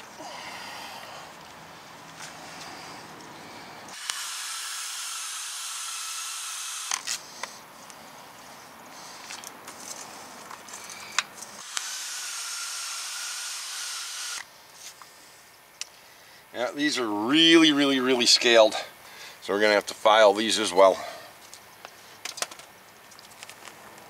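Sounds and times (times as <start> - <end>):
drill with wire brush scrubbing metal: 3.9 - 7.2, 11.6 - 14.4.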